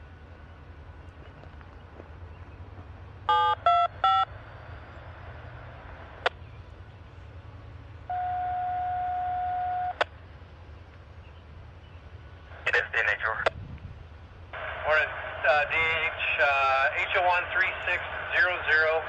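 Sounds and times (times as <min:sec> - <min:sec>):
low steady rumble: 0:00.0 - 0:19.0
scanner radio beeps: 0:03.3 - 0:04.3, 0:08.1 - 0:10.0
steady beep tone: 0:03.3 - 0:04.3, 0:08.1 - 0:10.0.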